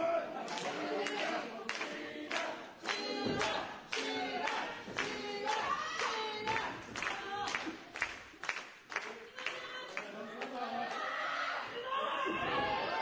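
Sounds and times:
crowd chanting: 0:00.0 - 0:07.4, 0:09.3 - 0:13.0
sharp claps: 0:00.5 - 0:10.1.

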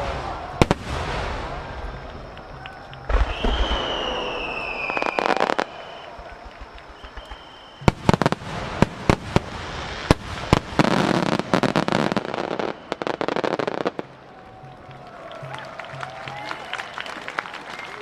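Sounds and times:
fireworks crackling: 0:00.0 - 0:18.0.

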